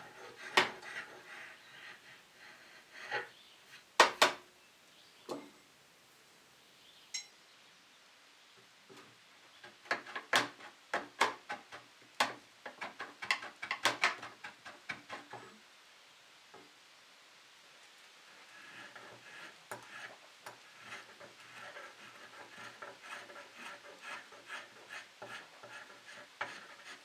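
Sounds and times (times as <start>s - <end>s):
steel chisel knocking on wooden handle: 9.9s - 15.4s, 18.8s - 27.0s.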